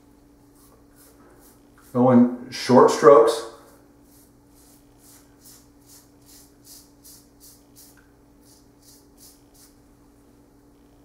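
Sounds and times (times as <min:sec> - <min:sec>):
faint hum: 0:00.0 - 0:11.0
razor scraping stubble: 0:00.5 - 0:02.2, 0:03.7 - 0:09.8.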